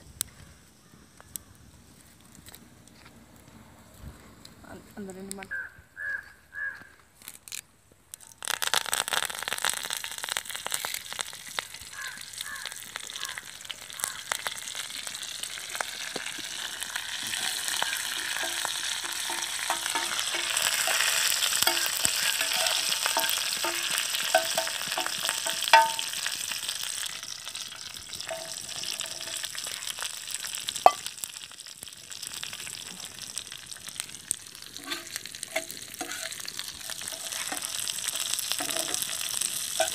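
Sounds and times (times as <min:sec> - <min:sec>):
leaves and garlic sizzling in oil: 0:07.2 - 0:39.9
metal spoon clinking against pan: 0:18.4 - 0:26.3.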